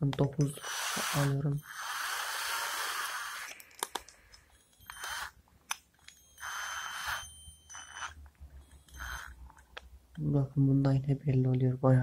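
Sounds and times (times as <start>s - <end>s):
drill whirring: 0.4s - 3.7s, 4.5s - 5.4s, 6.0s - 9.4s
drill chuck clicking: 0.4s - 8.1s.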